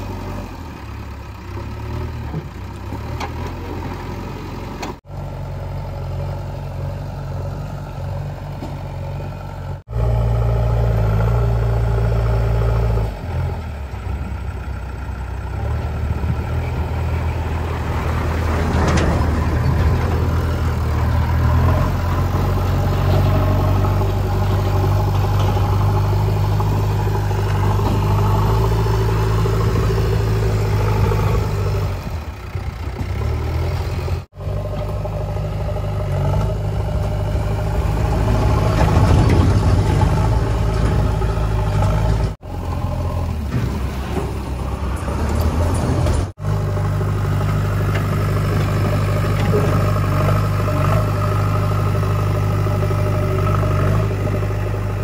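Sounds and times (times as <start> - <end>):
diesel engine running under load: 0.0 - 55.0.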